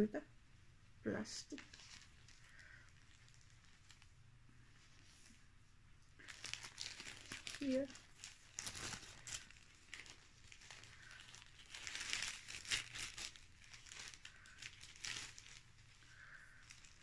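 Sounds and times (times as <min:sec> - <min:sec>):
plastic bag crinkling: 0:01.4 - 0:04.3, 0:06.2 - 0:17.0.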